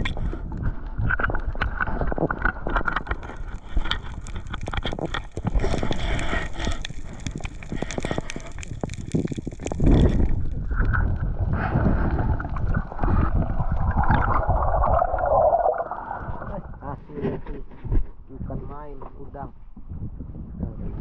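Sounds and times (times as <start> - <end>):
underwater churning water: 0.0 - 16.8
small underwater clicks and crackles: 0.0 - 19.2
low underwater surge: 9.8 - 16.9.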